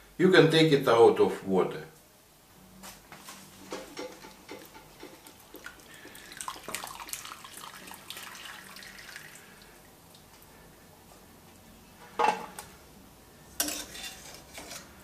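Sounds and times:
liquid running and dripping into pot: 3.7s - 10.5s.

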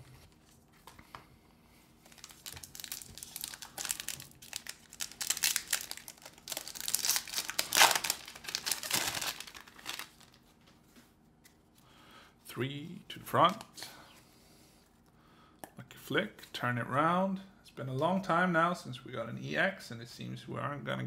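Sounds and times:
foil wrapper crinkling and tearing: 2.0s - 10.4s.

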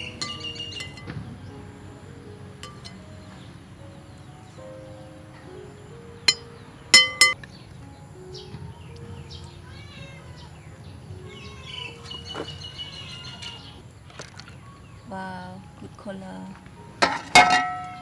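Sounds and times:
metal spoon clinking glass bowl: 0.2s - 1.1s, 2.6s - 3.0s, 7.0s - 7.4s
faint chirping animal calls: 9.3s - 13.8s.

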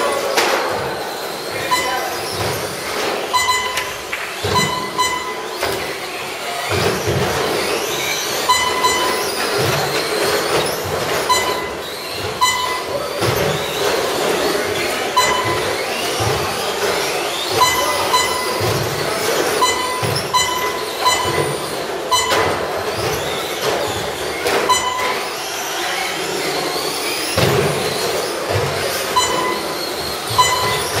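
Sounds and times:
electric motors whining: 0.0s - 31.0s
short electronic beeps: 1.5s - 2.4s, 3.2s - 5.7s, 8.4s - 10.6s, 11.2s - 13.6s, 15.1s - 16.5s, 17.4s - 23.0s, 24.6s - 25.2s, 29.1s - 31.0s.

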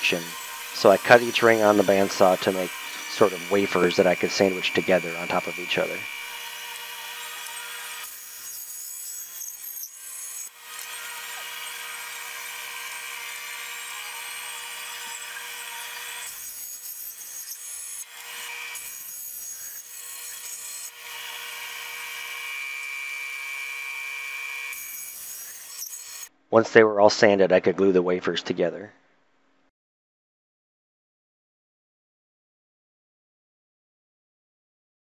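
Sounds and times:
bandsaw cutting wood: 0.0s - 26.3s.

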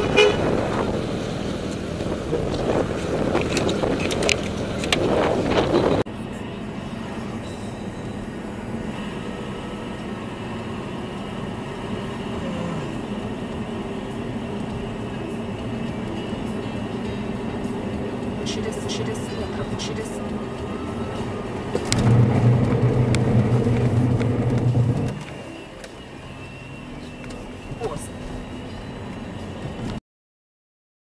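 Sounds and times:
car engine and road noise: 0.0s - 30.0s
noisy stretch with sharp clicks: 21.7s - 25.4s.

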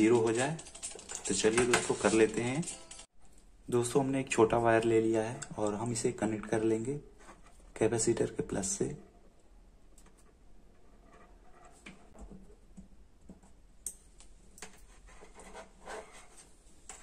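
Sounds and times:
hands handling circuit board: 0.0s - 3.5s.

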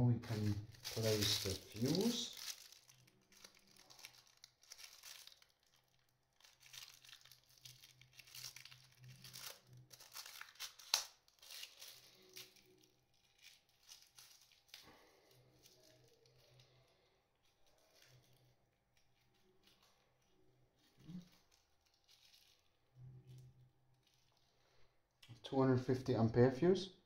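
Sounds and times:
plastic packaging crinkling: 0.2s - 25.2s.

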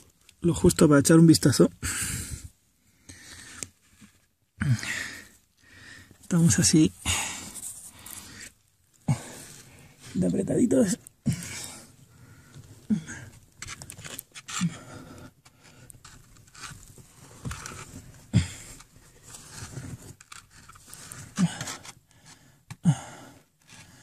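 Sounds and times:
short breaths: 4.6s - 6.2s.

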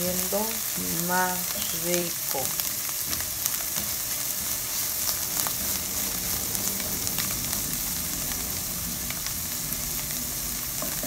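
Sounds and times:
vegetables sizzling in a pan: 0.0s - 11.0s
spatula stirring: 2.6s - 8.6s.

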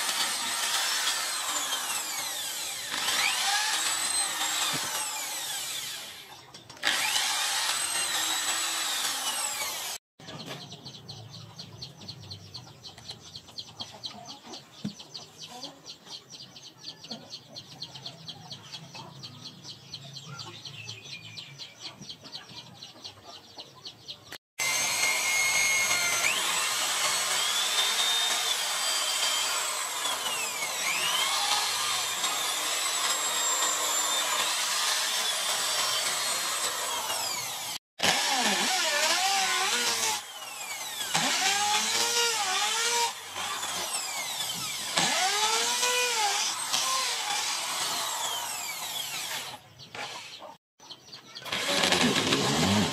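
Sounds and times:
electric drill whining: 0.0s - 10.0s, 24.6s - 50.2s, 51.5s - 52.9s.

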